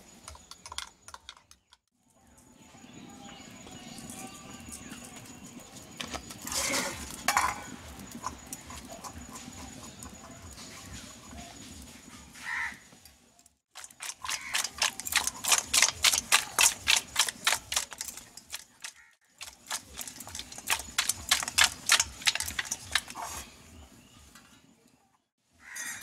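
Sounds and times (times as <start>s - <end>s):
metal colander rattling: 6.2s - 11.5s, 13.7s - 23.5s.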